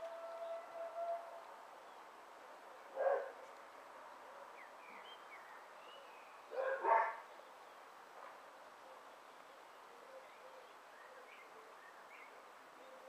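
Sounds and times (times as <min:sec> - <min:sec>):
dog barking: 0:03.0 - 0:03.4, 0:06.5 - 0:07.2.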